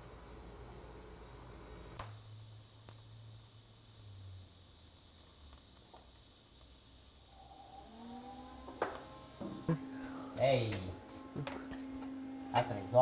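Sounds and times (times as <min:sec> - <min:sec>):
welding arc hissing and buzzing: 0:00.0 - 0:13.0
low hum: 0:07.1 - 0:13.0.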